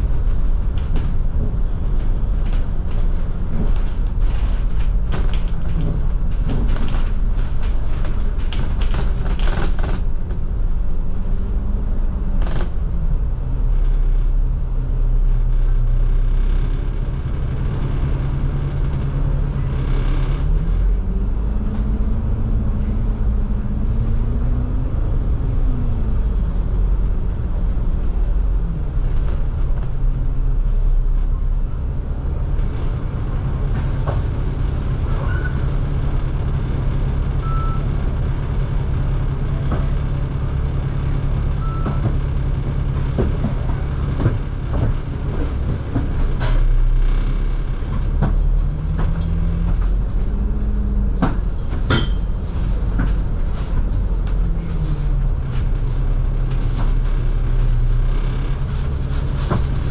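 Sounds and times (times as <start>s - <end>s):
bus engine and drivetrain: 0.0s - 59.9s.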